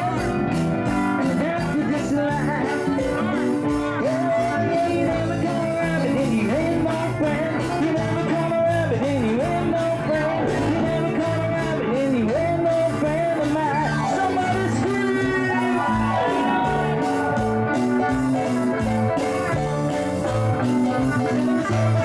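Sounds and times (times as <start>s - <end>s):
man singing into a microphone: 0.0s - 18.5s, 20.8s - 22.0s
live band playing dance music: 0.0s - 22.0s.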